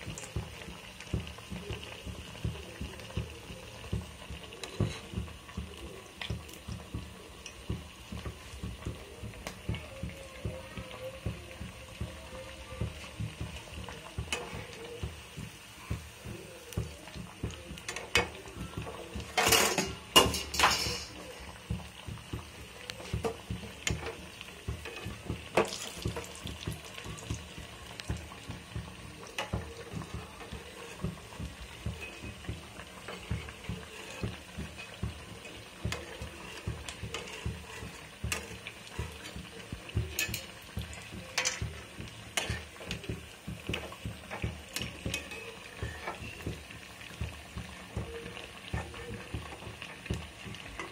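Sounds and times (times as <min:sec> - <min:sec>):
food deep-frying in oil: 0:00.0 - 0:50.9
metal spatula scraping pan: 0:42.3 - 0:43.0.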